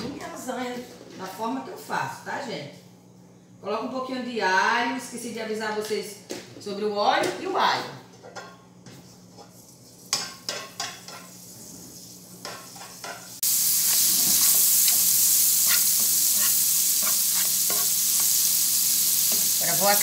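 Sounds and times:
garlic sizzling in oil: 9.4s - 20.0s.

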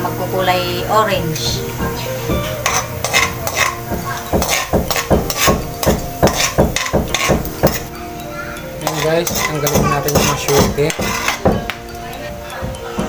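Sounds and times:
metal spatula scraping a wok: 2.4s - 7.9s, 8.8s - 11.5s.

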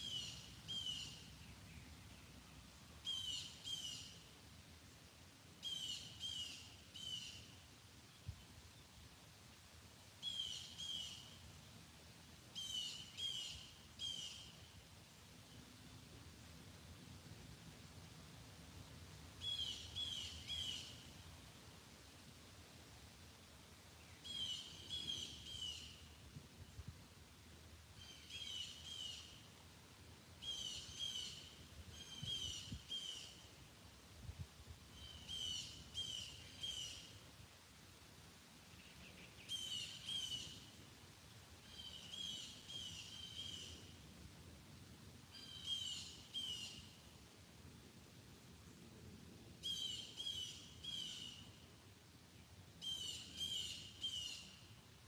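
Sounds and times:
songbird singing: 0.0s - 4.3s, 5.6s - 9.3s, 10.1s - 11.8s, 12.5s - 16.2s, 19.3s - 21.4s, 23.4s - 26.9s, 27.9s - 29.6s, 30.3s - 33.8s, 34.9s - 37.3s, 38.6s - 44.0s, 45.2s - 47.2s, 49.6s - 51.7s, 52.4s - 54.8s.

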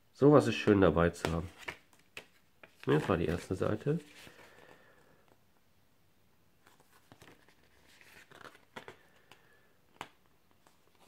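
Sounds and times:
paper pages turning: 1.2s - 4.7s, 6.6s - 11.0s.

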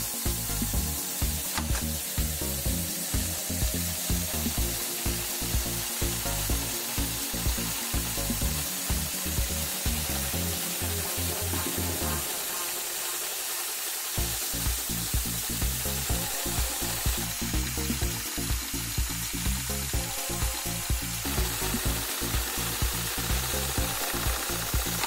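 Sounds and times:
background music with beat: 0.0s - 25.0s
sewing machine running: 0.0s - 25.0s
sharp click: 1.4s - 2.0s.

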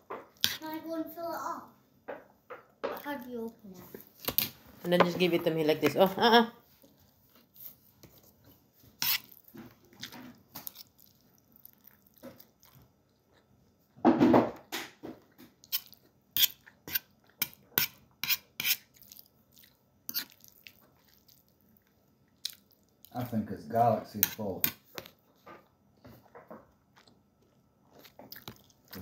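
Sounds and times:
person chewing: 9.0s - 13.6s, 15.6s - 23.1s, 26.2s - 29.0s.

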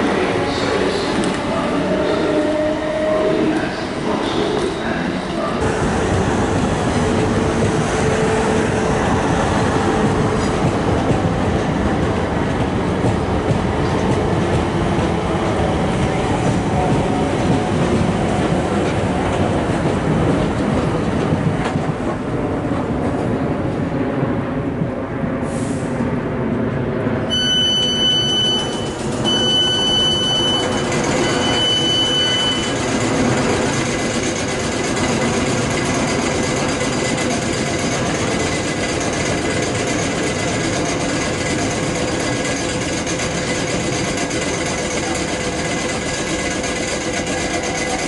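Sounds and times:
train electrical hum: 27.2s - 48.0s
long electronic beeps: 27.3s - 32.9s.

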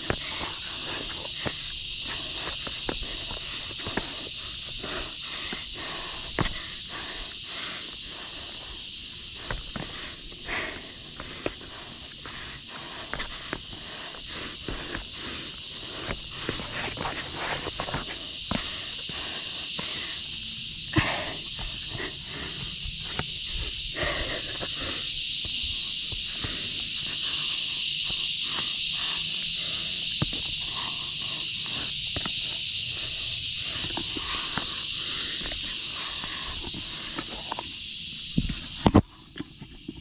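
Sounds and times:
hands and shoes scuffing on rock: 0.0s - 4.3s, 12.2s - 19.2s
steady high hiss: 0.0s - 40.0s.

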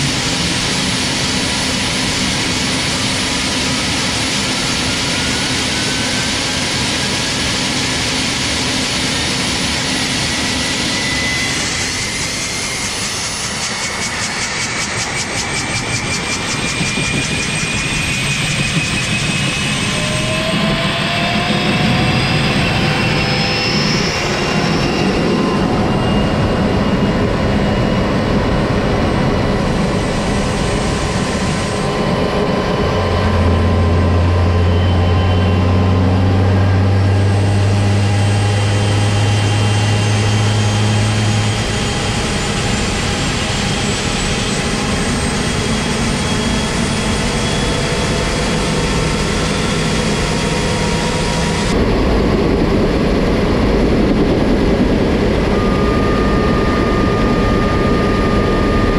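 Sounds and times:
faint high whine rising: 0.0s - 58.9s
helicopter engine roar with turbine whine: 0.0s - 58.9s
strong low hum: 15.7s - 58.9s.

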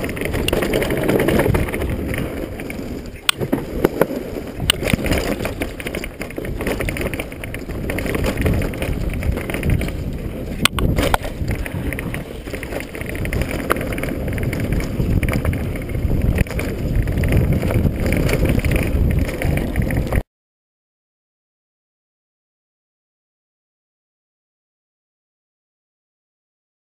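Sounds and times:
bike knocking and rattling: 0.0s - 20.2s
bike tyre noise: 0.0s - 20.2s
wind rush on microphone: 0.0s - 20.2s.

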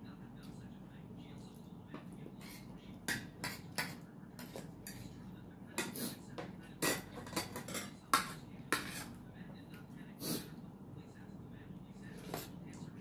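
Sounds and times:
cutlery clinking on plates: 3.1s - 5.2s, 5.8s - 9.2s.

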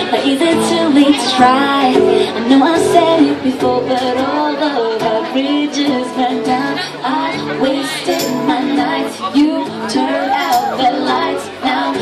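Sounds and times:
strummed acoustic guitar: 0.0s - 12.0s
woman singing pop song: 0.0s - 12.0s.

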